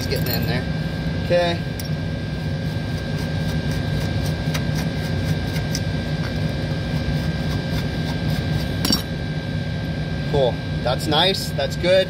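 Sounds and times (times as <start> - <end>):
machinery hum with high whine: 0.0 - 12.0
hand tool clicking and scraping pipe: 3.1 - 9.1.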